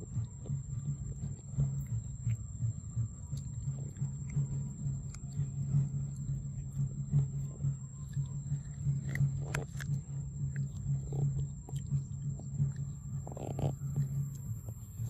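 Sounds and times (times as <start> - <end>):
monkey chewing corn crunches: 0.0 - 15.0
steady low hum: 0.0 - 15.0.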